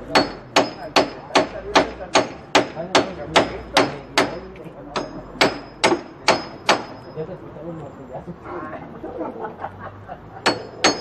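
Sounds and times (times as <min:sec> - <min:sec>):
hammer striking chisel: 0:00.0 - 0:07.1, 0:10.4 - 0:11.0.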